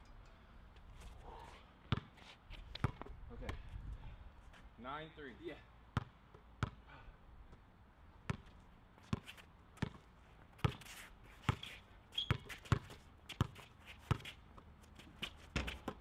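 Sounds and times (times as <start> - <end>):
basketball bouncing on hard court: 2.8 - 3.1, 6.0 - 6.8, 8.3 - 8.5, 9.8 - 10.0, 12.2 - 14.3.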